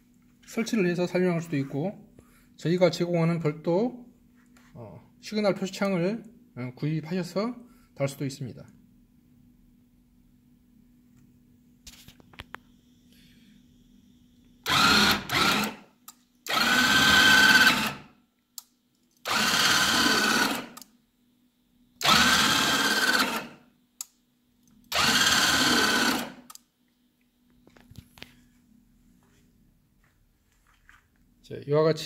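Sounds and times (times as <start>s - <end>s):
faint steady hum: 0.0s - 14.7s, 20.8s - 22.0s
electric motor whine: 14.7s - 15.8s, 16.5s - 18.0s, 19.3s - 20.8s, 22.0s - 23.5s, 24.9s - 26.4s.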